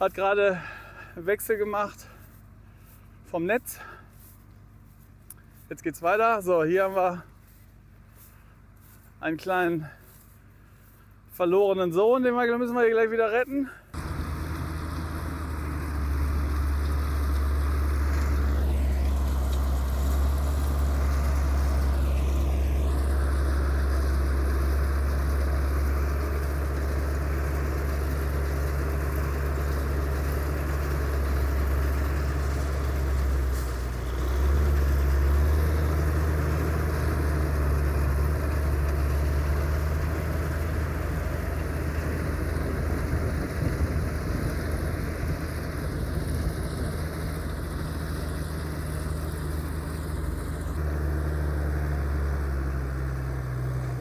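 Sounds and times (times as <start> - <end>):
tractor engine humming: 0.0 - 54.0.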